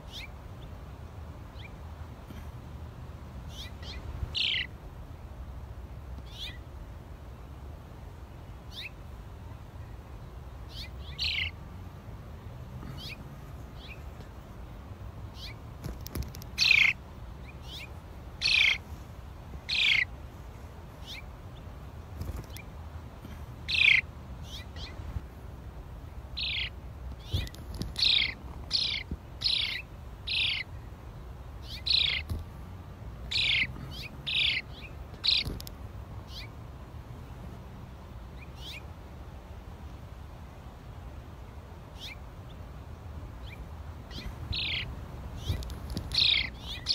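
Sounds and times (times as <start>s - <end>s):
sparrow chirping: 0.0s - 0.7s, 3.5s - 4.8s, 6.2s - 6.7s, 8.5s - 9.0s, 10.6s - 11.6s, 12.8s - 14.2s, 15.3s - 18.9s, 19.6s - 20.1s, 21.0s - 21.7s, 23.6s - 25.0s, 26.3s - 30.9s, 31.6s - 32.5s, 33.2s - 36.6s, 38.4s - 38.9s, 41.9s - 42.6s, 43.4s - 46.9s
low background rumble: 0.0s - 46.9s.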